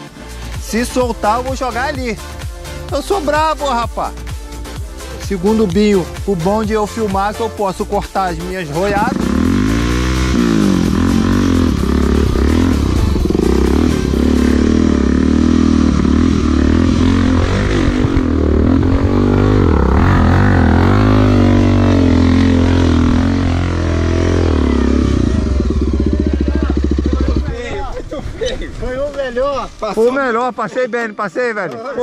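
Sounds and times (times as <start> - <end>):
person talking: 5.2 - 9.3
motorcycle engine revving: 8.5 - 28.0.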